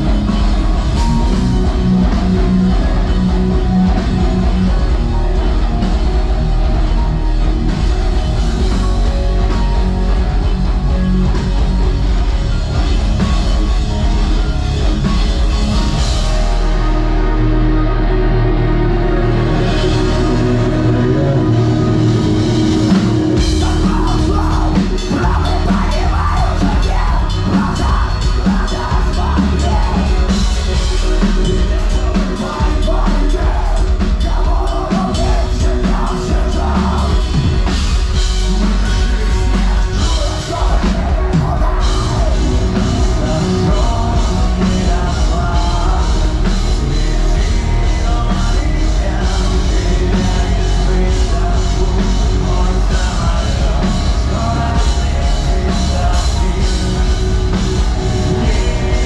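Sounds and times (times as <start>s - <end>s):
distorted electric guitars: 0.0s - 59.0s
drum kit: 0.0s - 59.0s
man singing: 0.0s - 59.0s.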